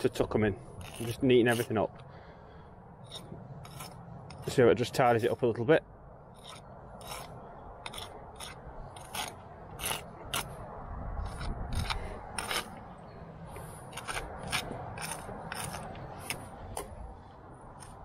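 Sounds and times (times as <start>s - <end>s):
brick jointer scraping mortar: 0.8s - 1.9s, 3.0s - 5.4s, 6.4s - 10.6s, 11.2s - 12.8s, 13.5s - 17.0s, 17.7s - 18.0s.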